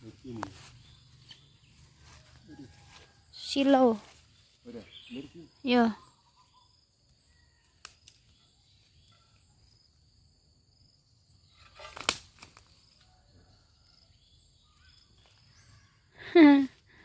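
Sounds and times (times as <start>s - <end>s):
leaves rustling: 0.0s - 5.8s, 11.5s - 13.0s
sharp snap of branch: 7.7s - 8.4s, 11.7s - 12.7s.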